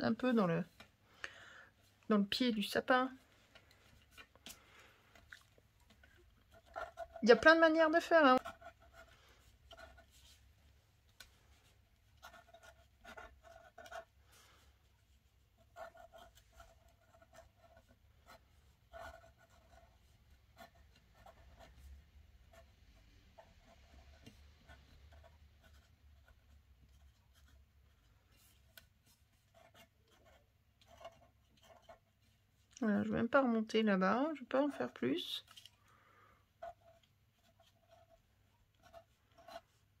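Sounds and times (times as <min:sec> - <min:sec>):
pen scratching on paper: 0:06.0 - 0:10.4, 0:12.0 - 0:32.4, 0:34.5 - 0:35.6, 0:36.6 - 0:39.8.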